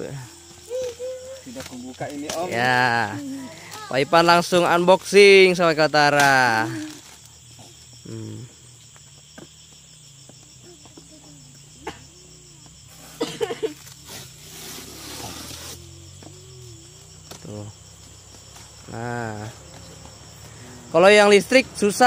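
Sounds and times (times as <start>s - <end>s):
insects chirring: 0.0s - 22.0s
tape and cardboard tearing: 13.8s - 15.9s.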